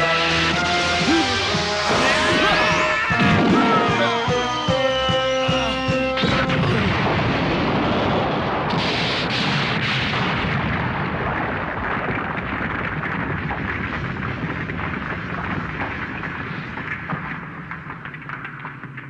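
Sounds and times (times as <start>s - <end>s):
rock explosion blast: 0.1s - 4.4s, 6.2s - 19.0s
falling rock rumbling: 6.2s - 19.0s.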